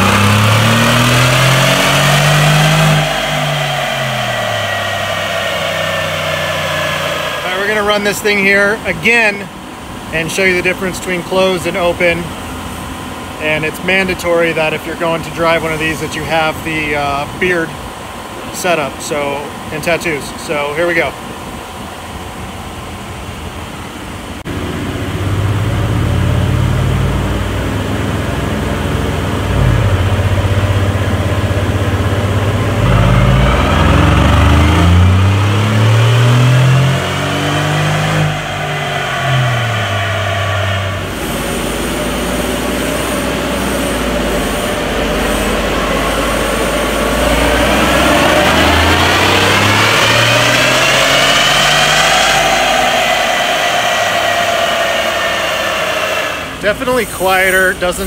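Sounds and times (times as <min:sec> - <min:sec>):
engine revving under load: 0:00.0 - 0:12.7, 0:24.3 - 0:57.3
high-pitched whine: 0:00.0 - 0:58.0.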